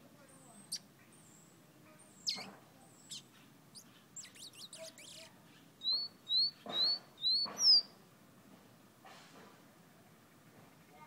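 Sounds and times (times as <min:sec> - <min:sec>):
songbird singing: 0:00.1 - 0:08.1.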